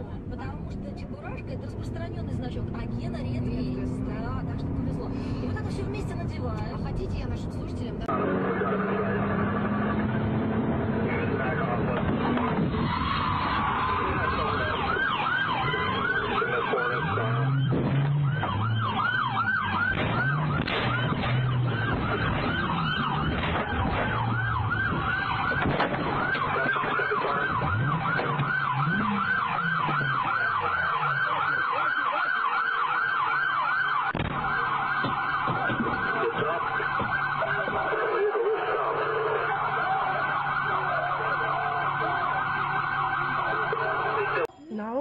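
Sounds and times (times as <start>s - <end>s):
police siren yelping: 8.0s - 44.5s.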